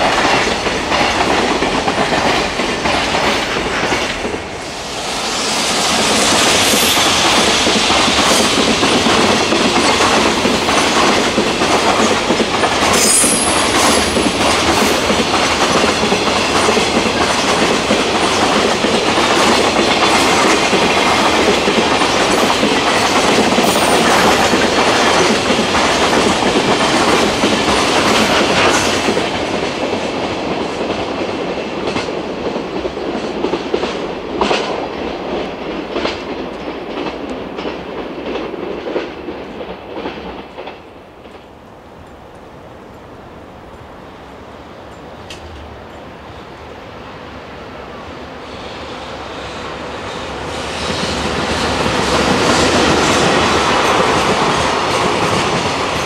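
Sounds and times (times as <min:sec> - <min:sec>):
freight train wheels clattering: 0:00.0 - 0:41.6, 0:50.0 - 0:56.0
train wheel screech: 0:04.6 - 0:08.7, 0:12.7 - 0:16.1.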